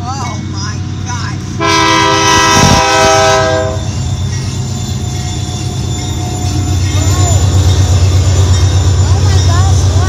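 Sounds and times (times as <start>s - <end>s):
freight train rumbling past: 0.0s - 10.0s
locomotive air horn blast: 1.6s - 3.9s.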